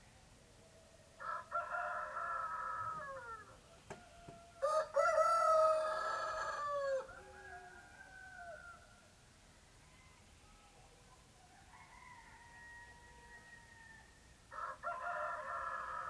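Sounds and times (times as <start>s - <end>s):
roosters crowing: 1.2s - 9.0s, 11.6s - 16.0s.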